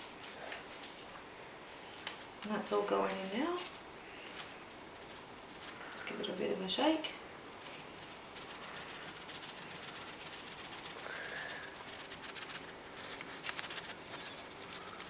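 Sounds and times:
paper funnel rustling and tapping: 7.7s - 15.0s.

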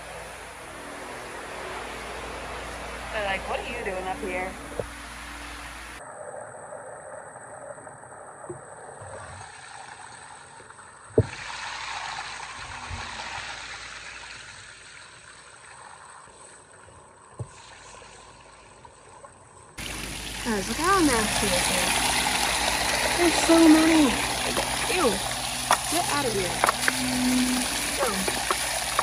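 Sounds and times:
water sloshing in a trough: 19.8s - 29.0s
brush scrubbing: 23.0s - 29.0s.

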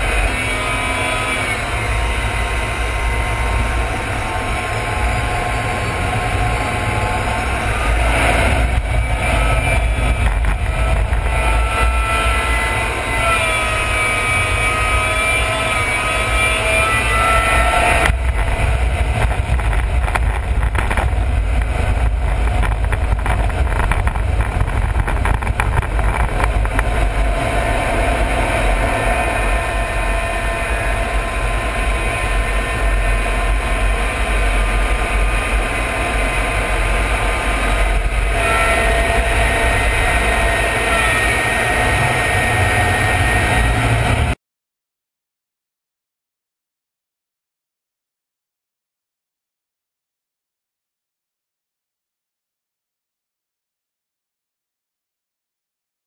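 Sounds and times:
jet engine and airflow rushing: 0.0s - 15.0s, 15.8s - 44.4s
faint turbine whine: 0.0s - 44.4s.

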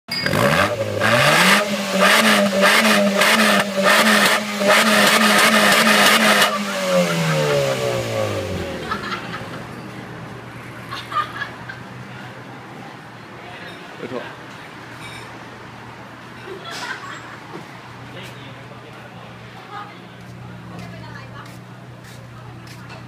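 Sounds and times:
car engine revving: 0.2s - 9.4s.

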